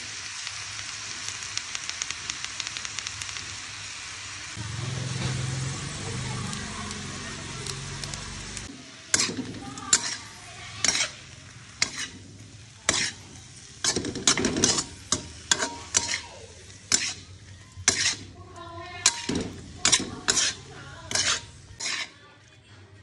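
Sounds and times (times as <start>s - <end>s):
frying sizzle: 0.0s - 22.2s
metal spatula scraping frying pan: 9.1s - 22.2s.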